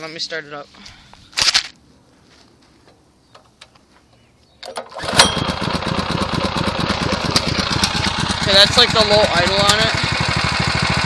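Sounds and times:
engine being pull-started: 4.6 - 8.5
small engine idling: 4.8 - 11.0.

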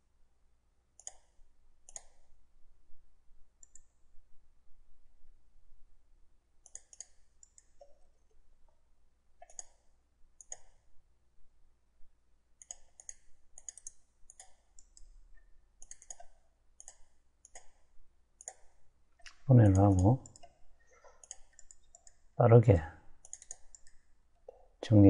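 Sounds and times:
computer mouse clicks: 1.0 - 2.3, 3.6 - 4.0, 6.6 - 8.3, 9.4 - 10.9, 12.6 - 22.2, 23.2 - 24.6.

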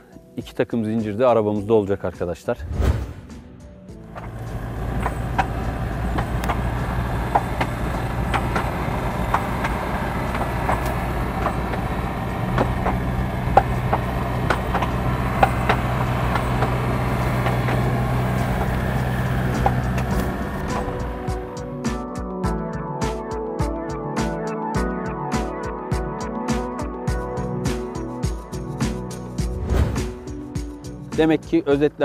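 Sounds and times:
engines droning under load: 3.9 - 21.7
sharp clicks: 4.2 - 11.9.

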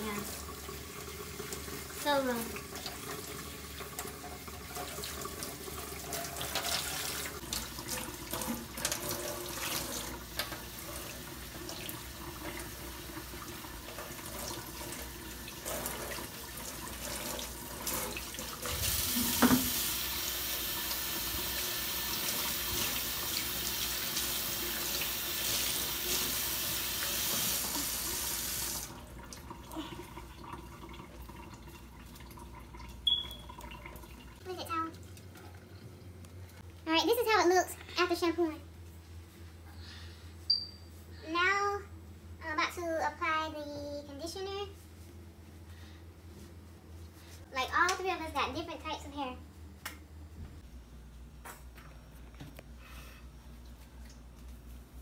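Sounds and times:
tap water running: 0.0 - 37.4.

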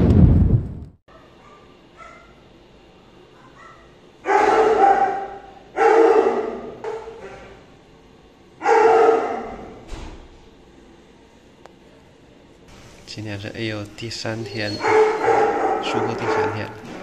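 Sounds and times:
dog barking loudly: 1.1 - 2.4, 3.4 - 7.0, 8.6 - 9.8, 14.6 - 16.9.

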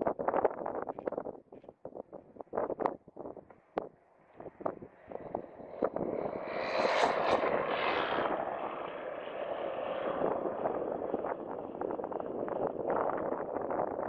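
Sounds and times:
propeller aircraft taking off: 3.6 - 14.0.

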